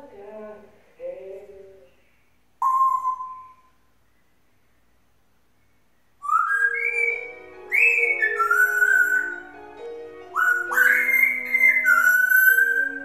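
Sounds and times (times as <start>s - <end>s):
parrot whistling: 2.6s - 3.8s, 6.2s - 9.6s, 10.3s - 13.0s
parrot talking: 10.3s - 13.0s.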